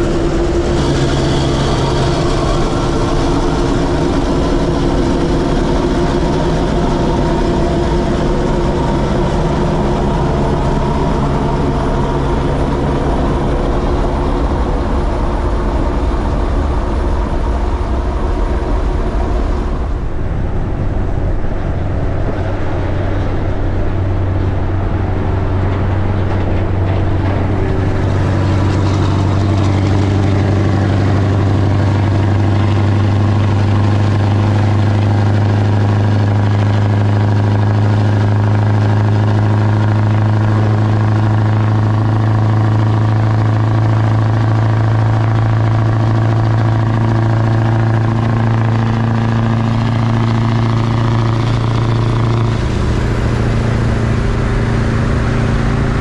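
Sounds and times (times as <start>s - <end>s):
diesel truck engine drone: 0.0s - 56.0s
wind noise: 0.0s - 56.0s.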